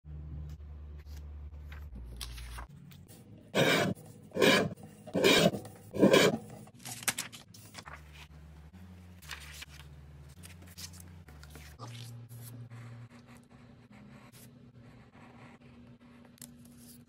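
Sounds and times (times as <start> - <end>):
paper rustling and sliding: 6.0 - 8.3, 9.2 - 12.5.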